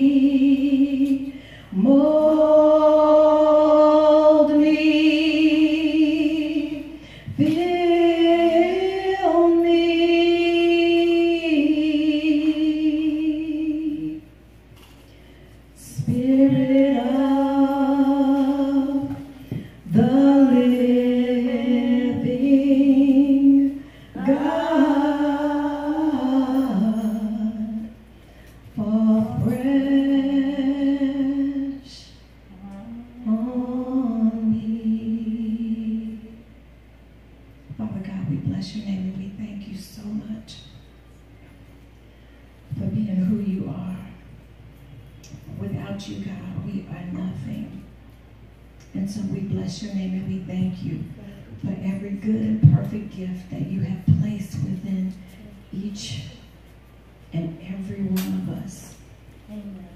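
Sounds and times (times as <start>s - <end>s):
woman singing unaccompanied: 0.0s - 14.3s, 15.8s - 28.0s, 28.8s - 32.2s, 33.1s - 36.4s.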